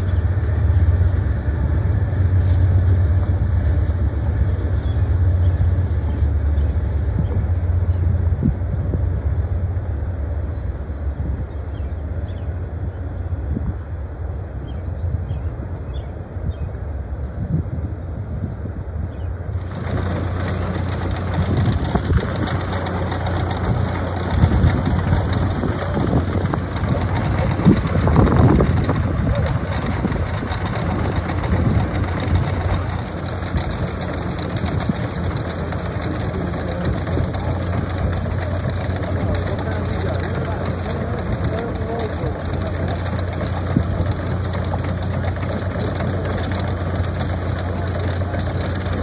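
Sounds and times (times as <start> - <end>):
engine humming: 19.5 - 49.0.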